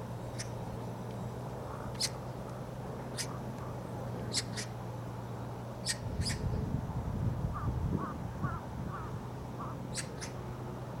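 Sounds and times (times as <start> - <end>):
steady low hum: 0.0 - 11.0
shorter lower bird calls: 5.8 - 6.6, 7.6 - 10.4.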